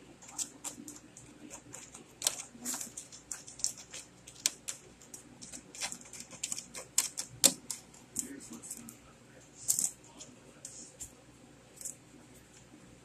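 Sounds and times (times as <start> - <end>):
kitten claws clicking on floor: 0.2 - 8.9.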